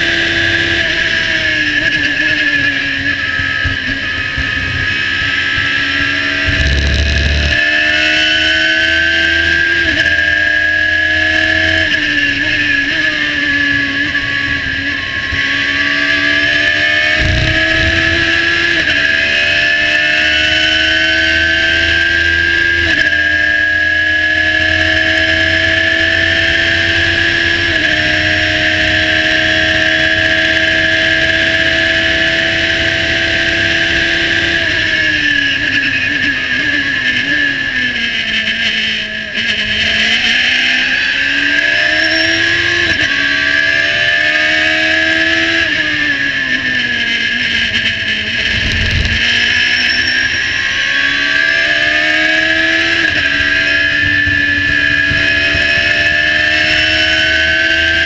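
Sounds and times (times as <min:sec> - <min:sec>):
race car engine revving: 0:00.0 - 0:58.0
low thump: 0:17.2 - 0:18.6.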